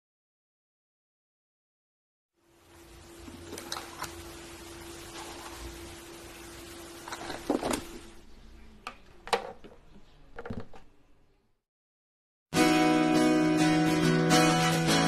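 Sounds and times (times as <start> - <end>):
faint steady hum: 2.4 - 11.6.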